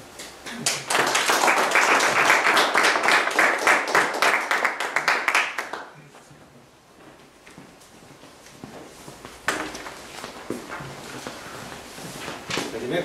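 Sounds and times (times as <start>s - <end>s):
audience applauding: 0.6s - 6.0s.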